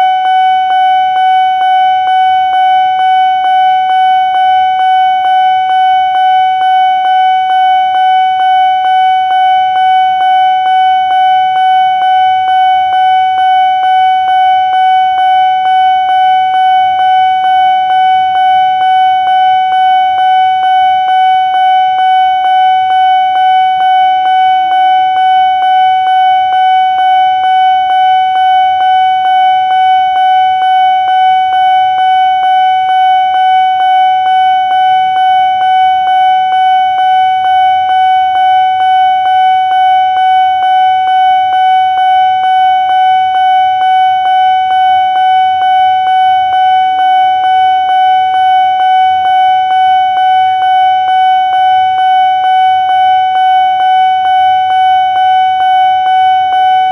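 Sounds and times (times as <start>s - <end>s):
level crossing warning bell: 0.0s - 56.9s.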